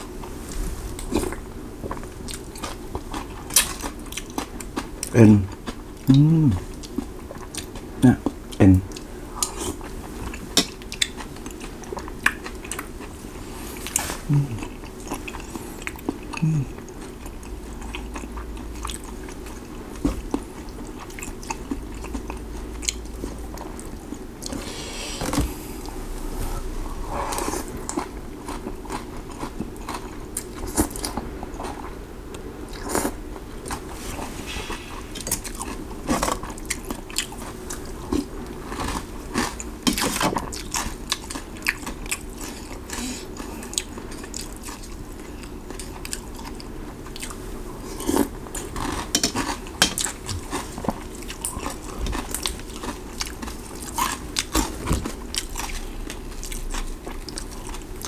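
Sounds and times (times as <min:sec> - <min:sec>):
slurping soup: 0:24.4 - 0:28.1.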